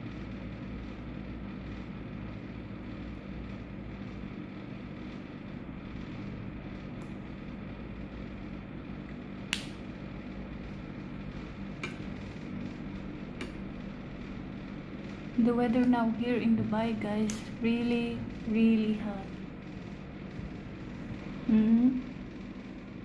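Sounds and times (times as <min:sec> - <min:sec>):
air conditioner humming: 0:00.0 - 0:23.0
sharp click: 0:09.5 - 0:09.8.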